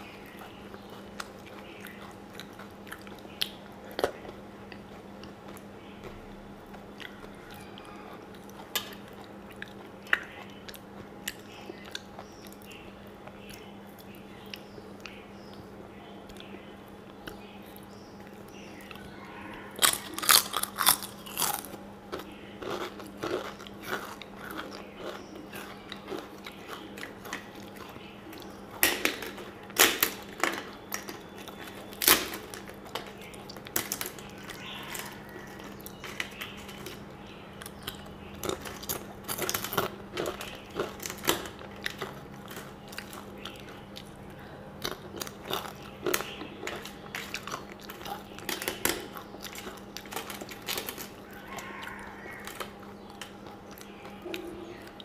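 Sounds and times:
crisp crunching and chewing: 0.0 - 55.0
faint steady hum: 0.0 - 55.0.

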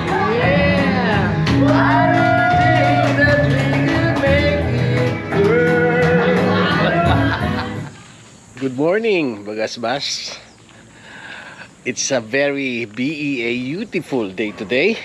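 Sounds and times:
man singing karaoke: 0.0 - 7.8
backing track music: 0.0 - 8.0.

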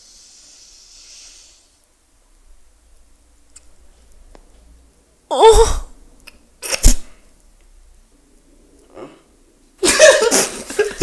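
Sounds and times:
person making cough-like noise: 6.6 - 7.2
people laughing: 9.8 - 11.0.

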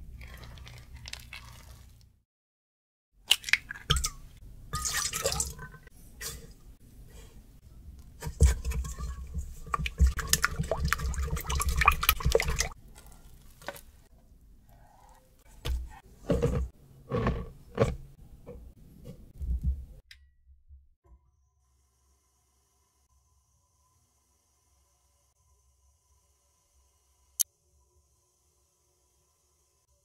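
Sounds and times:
whisking in a metal bowl: 8.2 - 12.7.

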